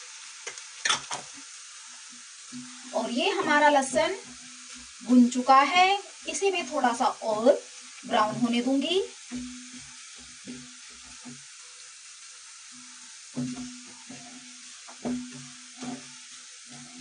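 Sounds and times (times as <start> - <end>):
garlic sizzling in oil: 0.0 - 17.0
spatula scraping a pan: 7.8 - 11.9, 12.7 - 17.0.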